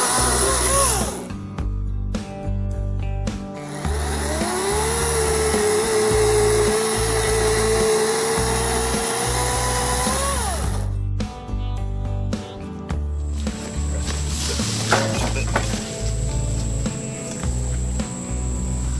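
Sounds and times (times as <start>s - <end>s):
electric chainsaw cutting wood: 0.0s - 1.4s, 3.6s - 10.9s, 13.4s - 18.9s
background music with steady beat: 0.0s - 18.9s.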